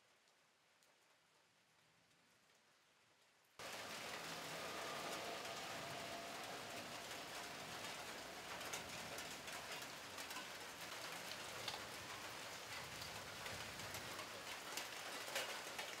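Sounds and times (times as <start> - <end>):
light rain hiss: 0.0 - 16.0
drops falling on leaves: 3.6 - 16.0.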